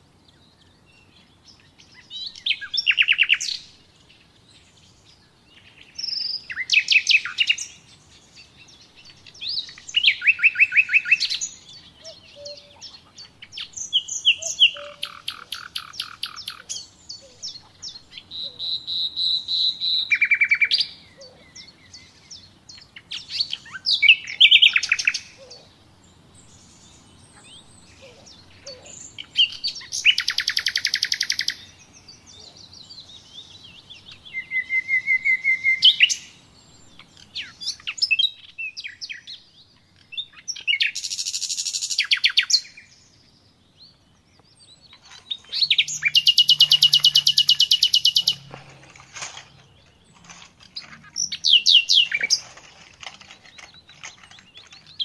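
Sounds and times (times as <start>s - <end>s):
songbird trilling: 0.3s - 3.9s, 4.7s - 55.0s.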